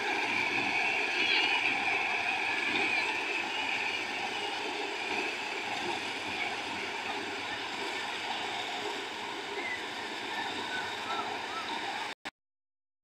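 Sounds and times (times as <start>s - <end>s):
combine harvester running: 0.0s - 12.2s.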